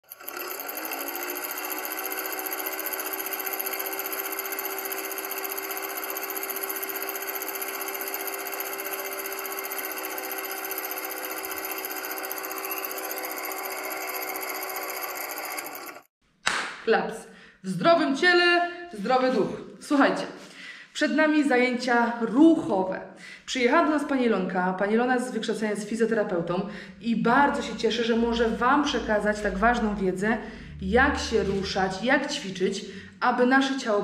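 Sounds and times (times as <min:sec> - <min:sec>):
film projector clatter: 0:00.0 - 0:16.1
film projector motor hum: 0:00.0 - 0:16.1.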